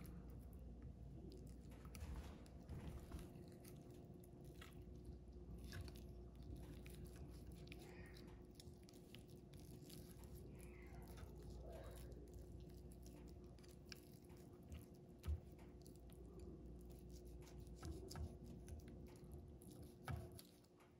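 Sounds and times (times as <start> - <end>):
low steady hum: 0.0 - 20.9
knife cutting raw meat: 17.0 - 18.8.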